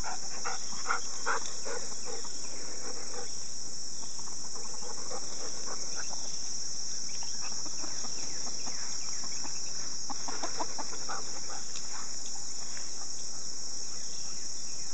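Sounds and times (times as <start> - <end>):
high-pitched insect chorus: 0.0 - 14.9
chickens clucking: 4.0 - 13.5.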